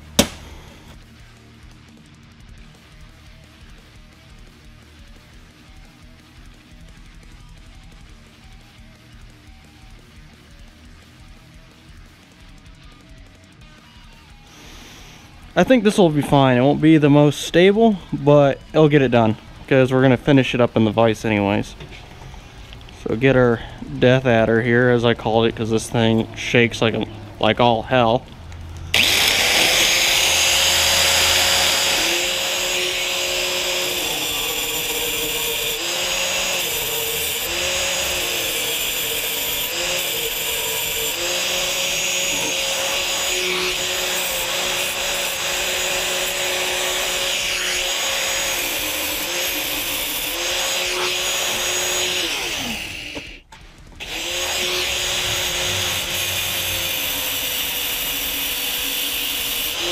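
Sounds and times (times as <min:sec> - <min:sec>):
angle grinder cutting sheet steel: 0:28.8 - 0:59.9.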